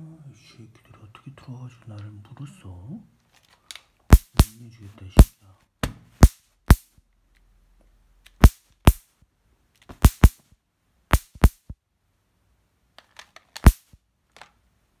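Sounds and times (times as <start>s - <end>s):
electric swatter zapping insects: 4.1s - 4.6s, 8.4s - 9.0s, 9.9s - 10.4s, 11.1s - 11.7s, 13.6s - 14.0s.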